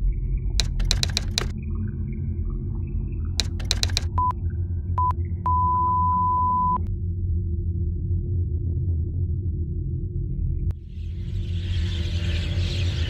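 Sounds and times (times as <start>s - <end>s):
patient monitor beeping: 0.6s - 1.5s, 3.4s - 4.3s
typewriter key clicks: 0.6s - 1.5s, 3.4s - 4.2s.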